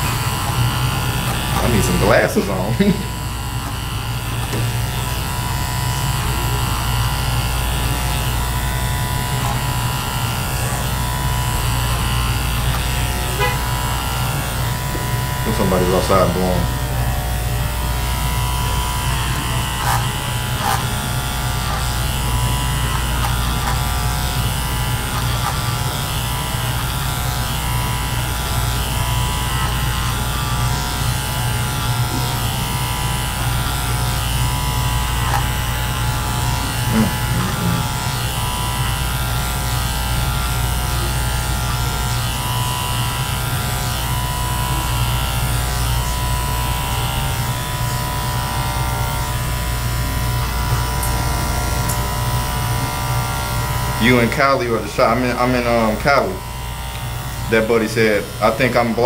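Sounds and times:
electric hair clippers cutting: 0:00.0 - 0:59.0.

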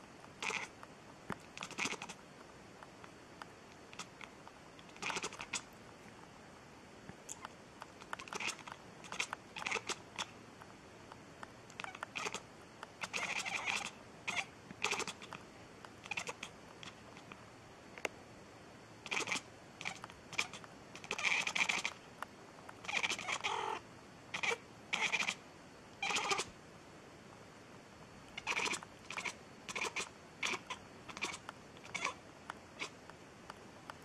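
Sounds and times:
cat chattering and chirping: 0:00.4 - 0:00.7, 0:01.5 - 0:02.2, 0:03.9 - 0:05.7, 0:07.3 - 0:10.4, 0:11.7 - 0:15.4, 0:16.0 - 0:17.4, 0:19.0 - 0:22.0, 0:22.8 - 0:25.4, 0:26.0 - 0:26.5, 0:28.4 - 0:32.2, 0:32.8 - 0:33.0.

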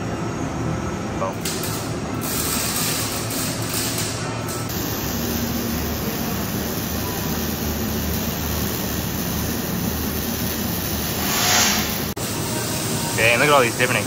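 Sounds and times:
torch hissing roar: 0:07.6 - 0:12.2.

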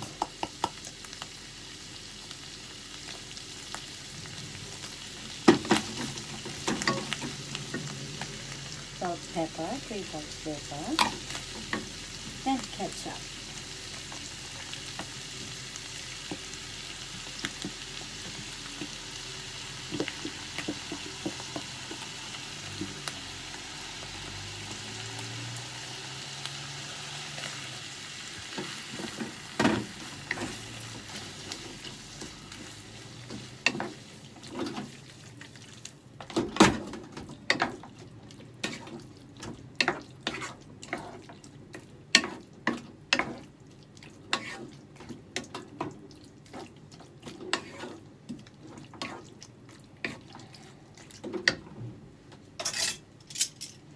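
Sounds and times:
food sizzling in a frying pan: 0:00.0 - 0:51.7
wooden spatula scraping a pan: 0:38.6 - 0:41.4, 0:42.1 - 0:43.5, 0:44.3 - 0:49.4.

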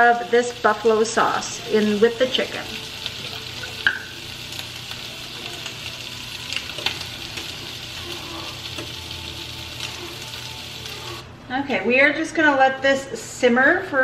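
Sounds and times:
chicken sizzling in a pan: 0:00.0 - 0:11.2.

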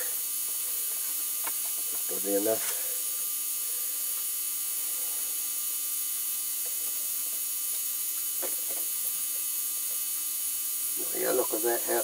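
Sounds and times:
constant hiss: 0:00.0 - 0:12.0
electrical hum: 0:00.0 - 0:12.0.

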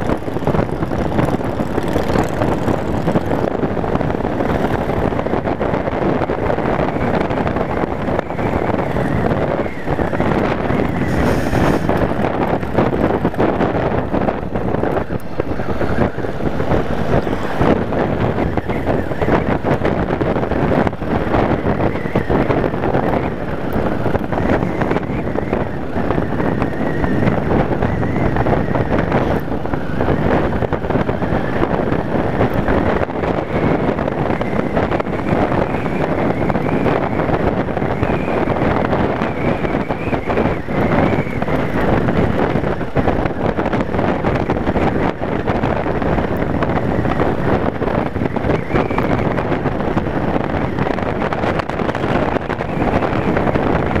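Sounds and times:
motorcycle engine running: 0:00.0 - 0:11.3
wind rushing over microphone: 0:00.0 - 0:54.0.

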